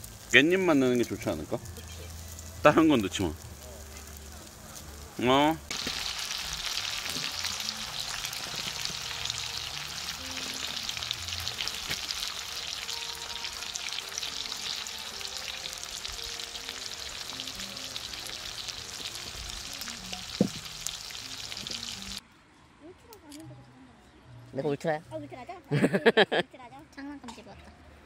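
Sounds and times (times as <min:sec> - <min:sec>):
meat frying on a griddle pan: 0:00.0 - 0:22.2.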